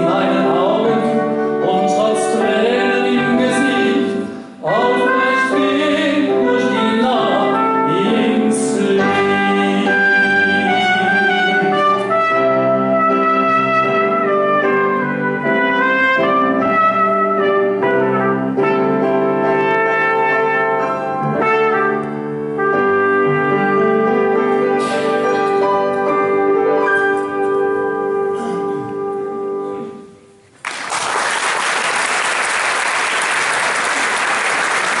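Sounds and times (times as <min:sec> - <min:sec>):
trumpet melody: 0:00.0 - 0:30.0
piano accompaniment: 0:00.0 - 0:30.1
audience applause: 0:30.6 - 0:35.0.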